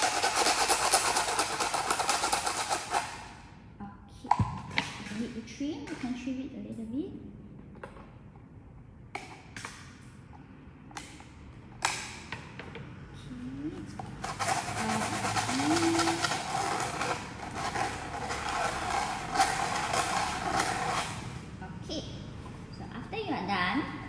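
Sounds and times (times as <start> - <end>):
sandpaper scraping plastic: 0.0 - 3.3, 14.1 - 21.3.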